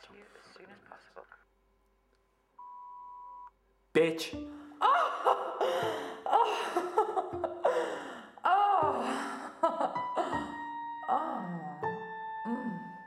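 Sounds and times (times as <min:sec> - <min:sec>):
wordless vocal gasps and moans: 0:05.4 - 0:06.9, 0:07.6 - 0:09.6.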